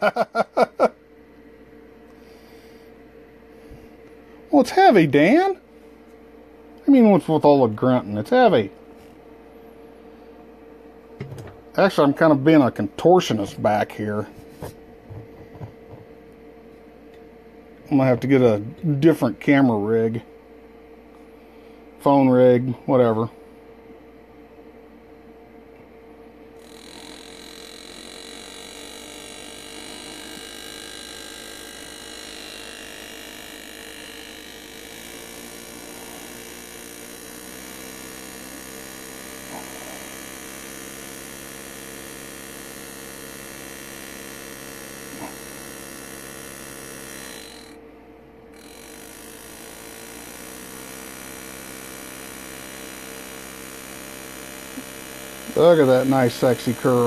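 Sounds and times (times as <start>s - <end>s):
engraving tool buzzing: 8.9s - 9.2s, 26.5s - 57.0s.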